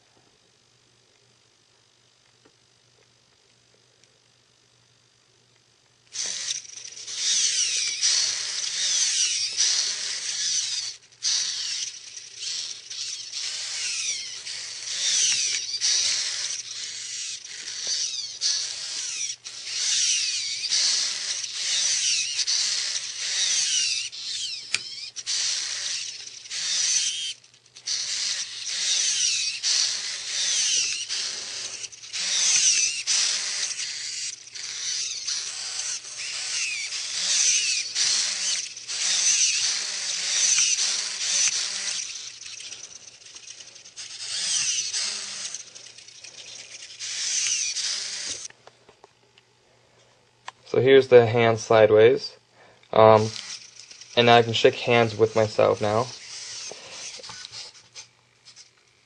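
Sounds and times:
servos whirring: 6.1 - 48.6, 52.8 - 59.0
high servo whine sliding in pitch: 6.2 - 48.5.

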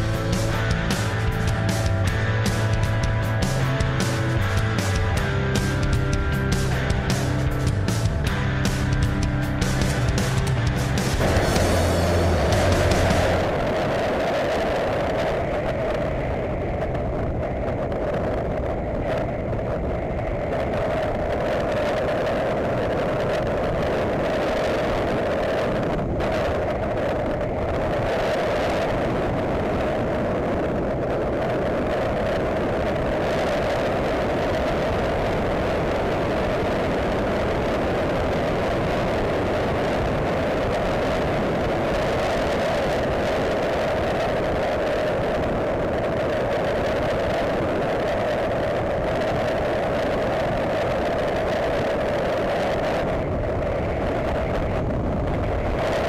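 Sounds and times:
motorcycle engine droning: 0.0 - 15.6
road noise: 0.0 - 56.0
wind rushing: 0.0 - 56.0.

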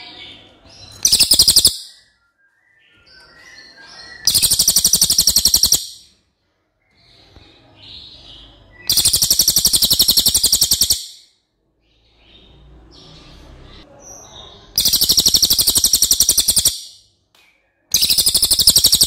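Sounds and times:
soft bird chirps: 0.0 - 19.0
songbird rapid trills: 1.0 - 1.8, 4.2 - 6.0, 8.9 - 11.2, 14.8 - 16.9, 18.0 - 19.0.

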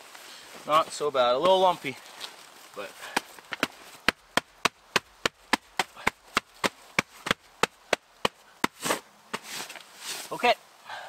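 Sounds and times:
sharp knocks: 3.1 - 9.5.

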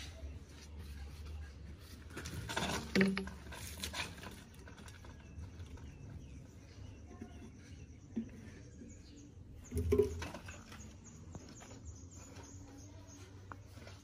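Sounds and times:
plastic pipe scraping and rattling: 1.2 - 12.6
faint bird chirps: 4.2 - 14.0.

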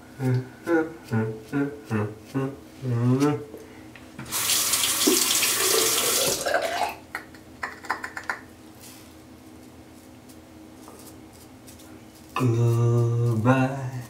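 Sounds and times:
sink tap running: 4.2 - 6.9.

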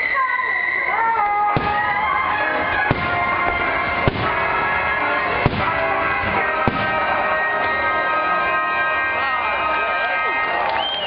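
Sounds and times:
music with long held notes: 1.1 - 10.8
fireworks bangs: 1.5 - 9.3.

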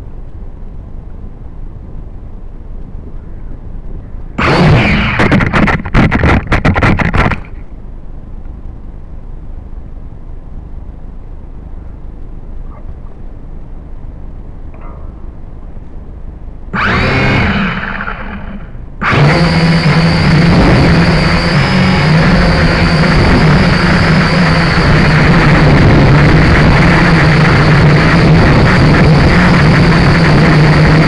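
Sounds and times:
drone motors knocking: 4.3 - 7.8, 16.8 - 31.0
wind on microphone: 16.7 - 31.0.

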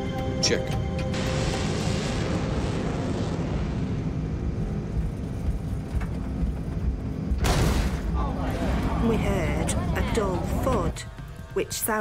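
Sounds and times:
jet engines at takeoff power: 1.0 - 7.8.

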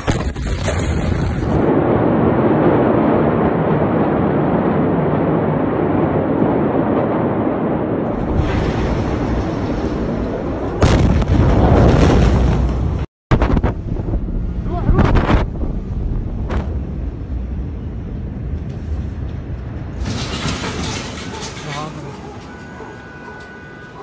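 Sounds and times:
blast wave boom and crash: 0.0 - 17.7
explosion rumble: 0.0 - 21.6.

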